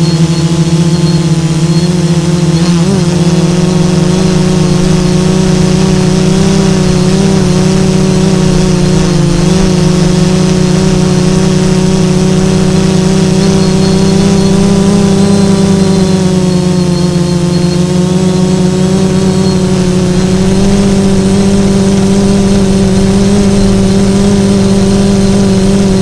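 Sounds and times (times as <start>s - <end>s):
drone motors buzzing: 0.0s - 26.0s.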